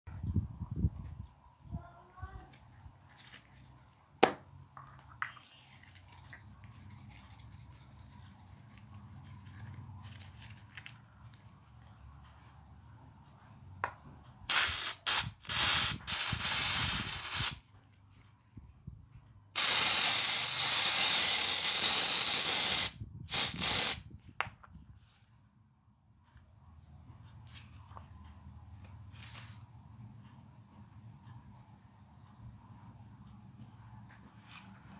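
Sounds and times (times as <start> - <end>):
aerosol can spraying: 14.5 - 17.6, 19.6 - 24.0.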